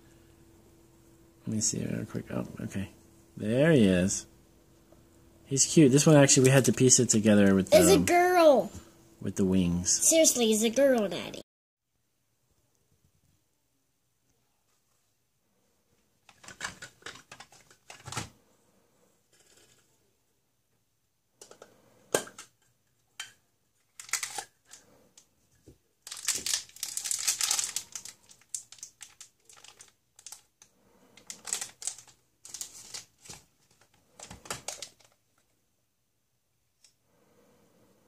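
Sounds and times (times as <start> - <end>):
plastic wrapper crinkling: 16.3 - 18.3, 23.8 - 24.8, 26.0 - 35.5.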